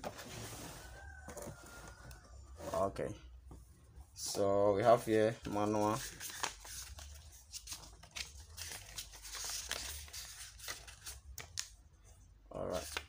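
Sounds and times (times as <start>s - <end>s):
paper pages flipping: 5.4s - 11.7s.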